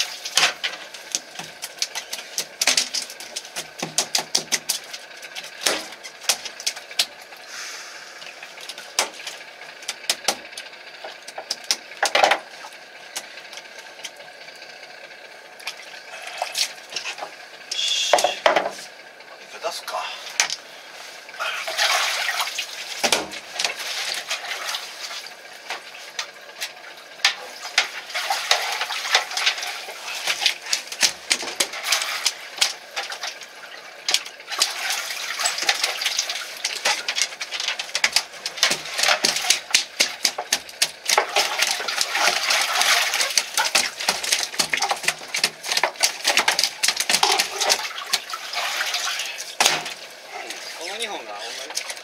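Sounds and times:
sharp clicks and knocks: 0.3 - 7.1, 36.7 - 41.8, 43.3 - 48.2
water splashing: 21.4 - 26.2, 26.8 - 52.0.

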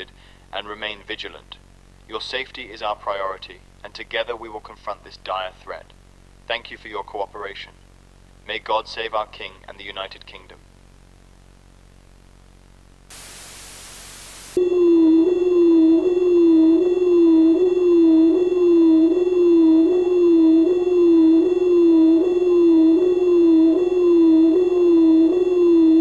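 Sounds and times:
burst of static: 6.8 - 14.6
steady high tones: 13.1 - 26.0
warbling emergency siren: 14.6 - 26.0.

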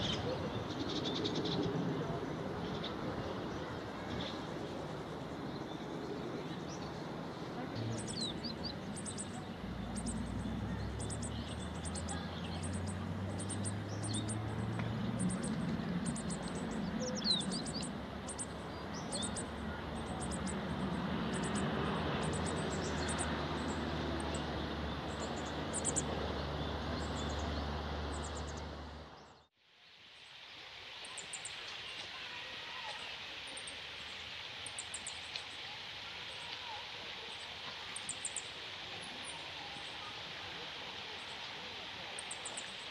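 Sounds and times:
birds calling high-pitched: 7.8 - 14.4.

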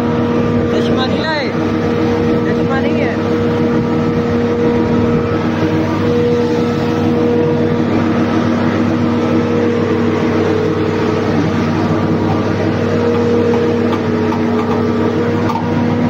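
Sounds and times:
forage harvester running: 0.0 - 16.0.

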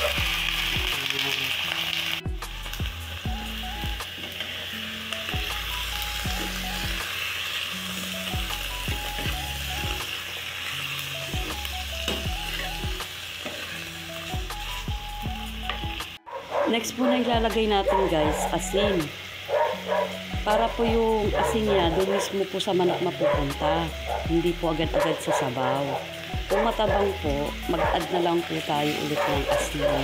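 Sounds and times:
chicken sizzling in hot oil: 0.0 - 30.0
background music with bass beat: 2.2 - 4.1.

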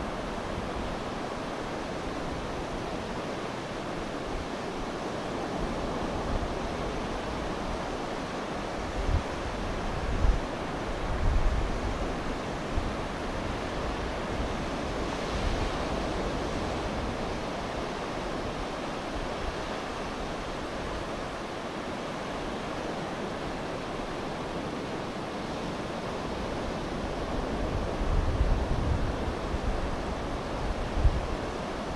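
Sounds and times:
wind buffeting microphone: 26.4 - 31.9.

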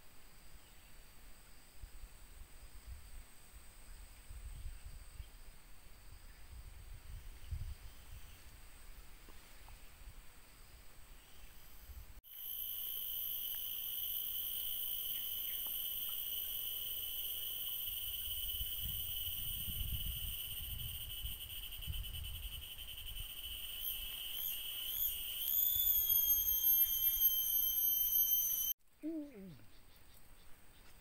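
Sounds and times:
cicada high whistle: 11.2 - 28.8.

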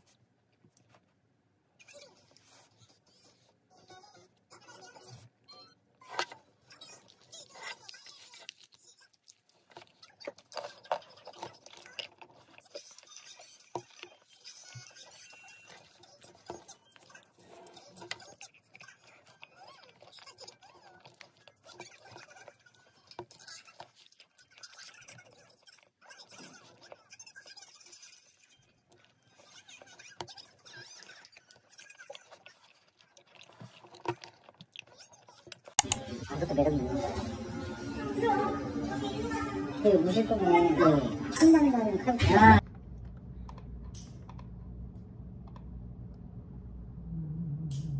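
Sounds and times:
crunchy chewing: 6.0 - 36.0.

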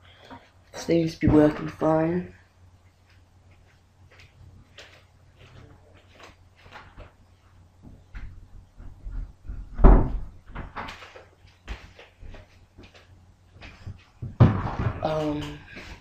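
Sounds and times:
heavy thump: 9.5 - 10.6, 14.2 - 15.0.

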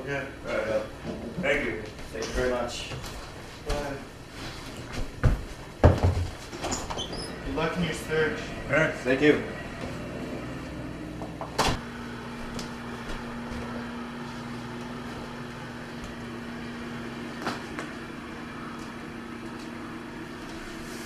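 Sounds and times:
steady low hum: 0.0 - 21.0
door shutting: 11.2 - 11.8.

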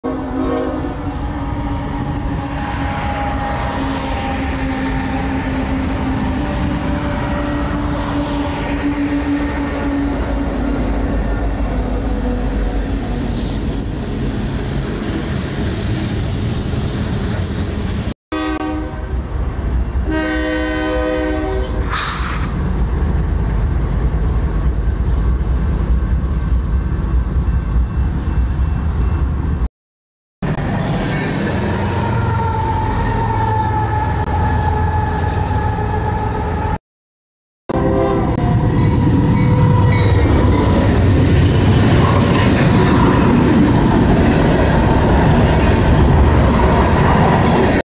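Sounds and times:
locomotive air horn: 0.0 - 1.1, 2.3 - 11.0, 18.3 - 19.2, 20.0 - 22.2, 37.7 - 38.8.

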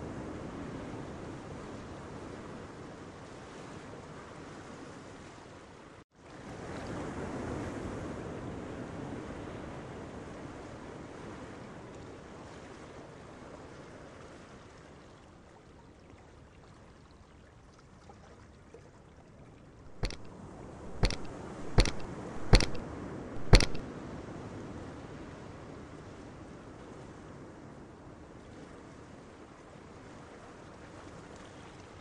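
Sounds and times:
sharp knocks: 19.9 - 20.3, 20.9 - 22.8, 23.4 - 23.8.

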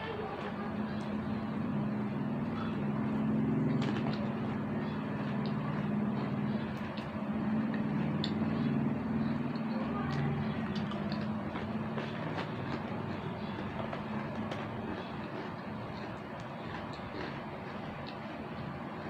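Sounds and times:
low mechanical hum: 0.0 - 19.0
crisp chewing crunches: 3.6 - 8.7, 9.5 - 19.0.

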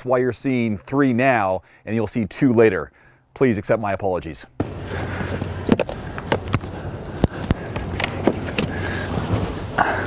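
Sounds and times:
clothing and seat rustle: 4.6 - 10.0
steady low hum: 4.6 - 10.0.

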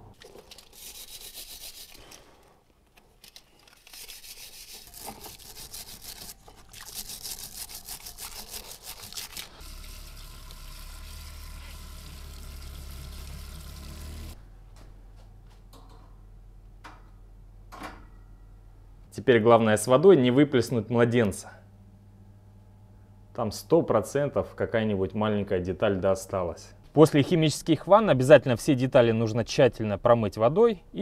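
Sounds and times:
wire brush scrubbing metal: 0.6 - 2.2, 3.7 - 9.9.

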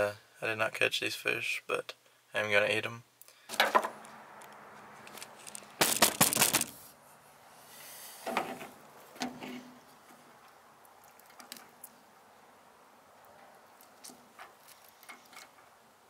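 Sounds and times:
loud clattering handling noise: 5.0 - 6.8.

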